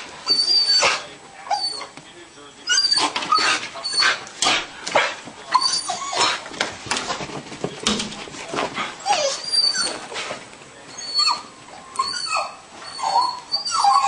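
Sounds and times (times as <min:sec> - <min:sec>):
dog whining and yipping: 0:00.2 - 0:02.0, 0:02.6 - 0:04.2, 0:05.5 - 0:06.4, 0:09.0 - 0:10.2, 0:10.9 - 0:14.0.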